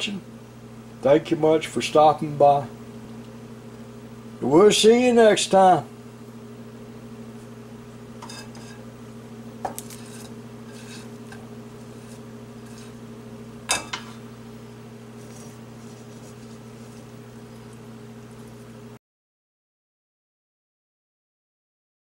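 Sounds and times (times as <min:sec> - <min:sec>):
steady low hum: 0:00.0 - 0:19.0
spatula scraping frying pan: 0:08.2 - 0:08.9, 0:09.8 - 0:13.1, 0:15.2 - 0:17.6.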